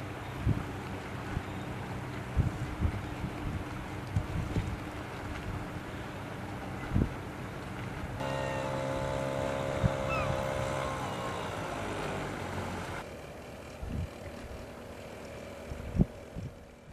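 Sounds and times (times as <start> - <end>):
wind on microphone: 2.3 - 5.8, 8.1 - 11.7
passing engine humming: 6.0 - 15.9.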